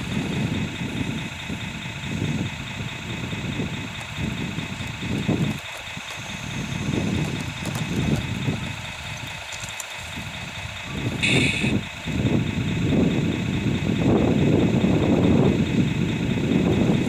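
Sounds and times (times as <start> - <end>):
low rumble of tracks: 0.0 - 17.0
toy motor whine: 4.1 - 11.8.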